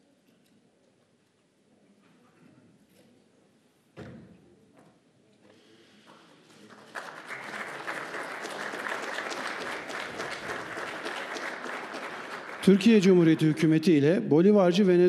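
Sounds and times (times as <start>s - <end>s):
audience applauding: 6.6s - 14.0s.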